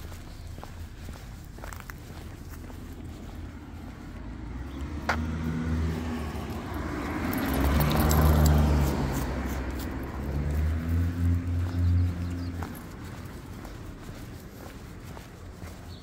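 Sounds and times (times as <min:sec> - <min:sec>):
car driving past: 0:03.2 - 0:13.7.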